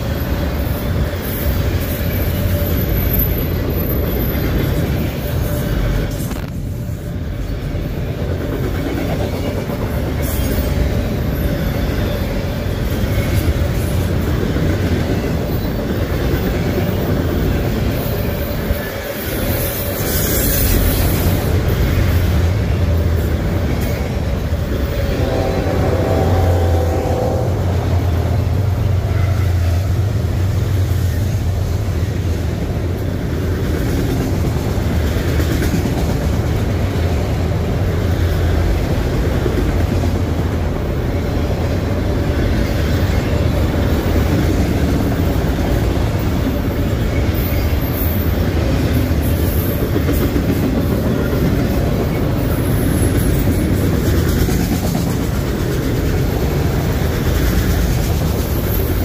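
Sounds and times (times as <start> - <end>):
train wheels rumbling on track: 0.0 - 59.0.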